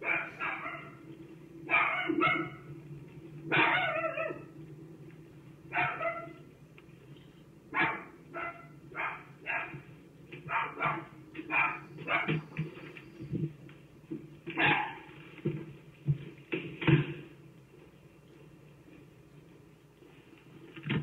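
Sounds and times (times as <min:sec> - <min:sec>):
dog barking: 0:00.0 - 0:01.0, 0:01.7 - 0:02.7, 0:03.5 - 0:04.5, 0:05.7 - 0:06.5, 0:07.7 - 0:09.8, 0:10.4 - 0:12.4, 0:14.6 - 0:15.1.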